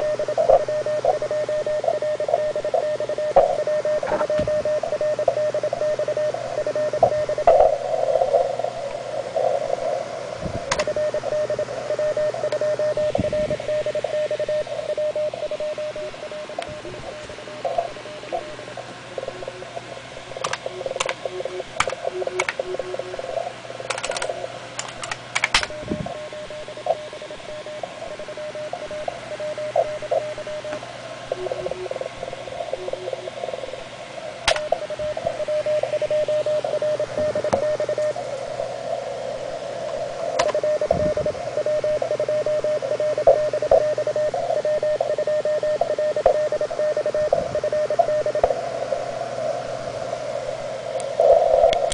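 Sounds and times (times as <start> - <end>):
morse code tone: 0.0 - 8.4, 10.7 - 23.4, 25.6 - 33.8, 34.5 - 38.2, 40.4 - 48.6
receiver hiss: 0.0 - 51.9
sharp clicks: 10.7 - 11.0, 16.6 - 23.2, 23.9 - 27.4, 34.4 - 35.4.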